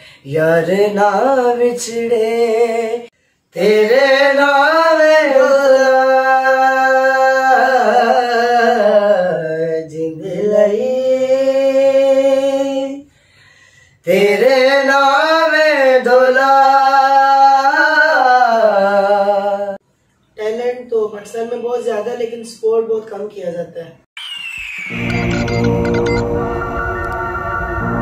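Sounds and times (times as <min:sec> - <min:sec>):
men singing unaccompanied: 0:00.3 - 0:13.1, 0:14.0 - 0:19.8.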